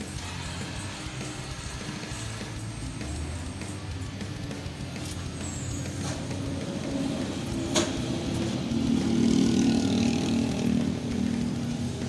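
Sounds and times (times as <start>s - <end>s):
arc welding buzz: 0.0s - 12.0s
sharp crack: 7.5s - 8.8s.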